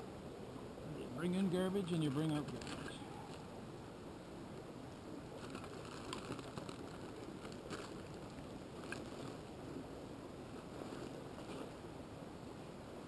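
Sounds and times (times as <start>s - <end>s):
plastic bag crinkling: 5.4s - 9.4s.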